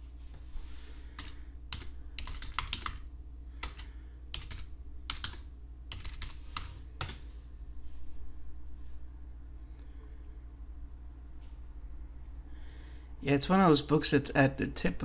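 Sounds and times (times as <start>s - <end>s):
keyboard typing clicks: 1.2s - 3.0s, 3.6s - 7.2s.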